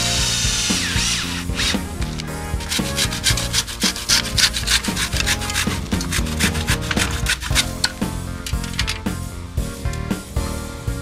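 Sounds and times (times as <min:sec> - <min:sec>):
handsaw cutting wood: 0:02.6 - 0:07.8.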